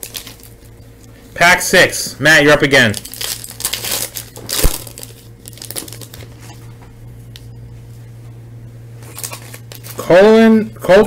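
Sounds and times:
wrapper crinkling: 0.0s - 0.8s, 2.7s - 6.6s, 9.0s - 10.0s
low room hum: 0.0s - 11.0s.

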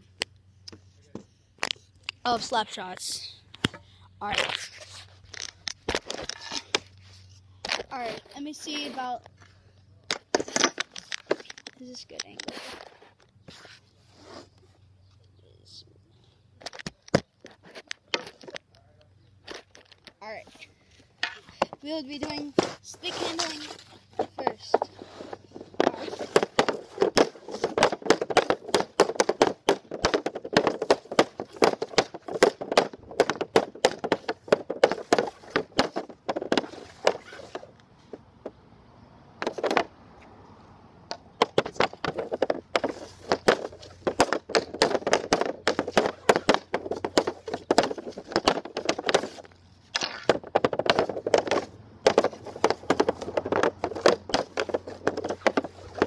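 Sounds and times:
hockey stick clacking puck: 21.2s - 37.7s, 41.1s - 56.0s.

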